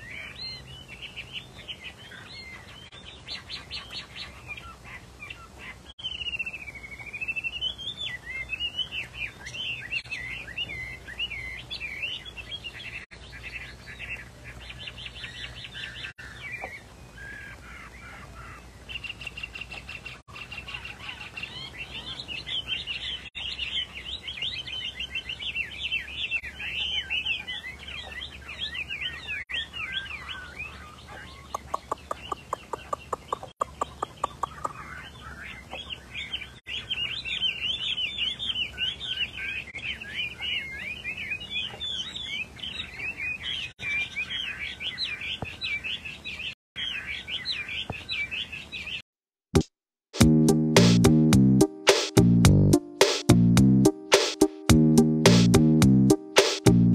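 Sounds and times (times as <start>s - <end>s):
songbird whistling and trilling: 0.0s - 49.0s.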